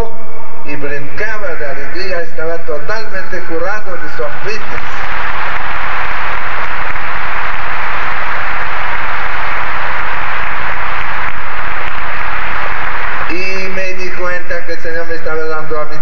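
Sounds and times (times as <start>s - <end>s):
large audience applauding: 4.8s - 13.4s.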